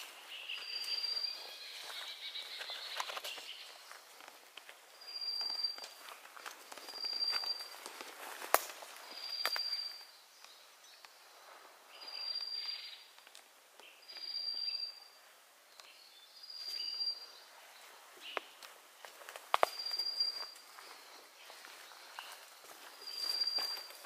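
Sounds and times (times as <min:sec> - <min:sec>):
footsteps through undergrowth: 0:00.0 - 0:10.6, 0:16.5 - 0:24.0
twig snapping: 0:08.4 - 0:08.8
bird whistled call: 0:19.7 - 0:20.6, 0:23.0 - 0:23.9.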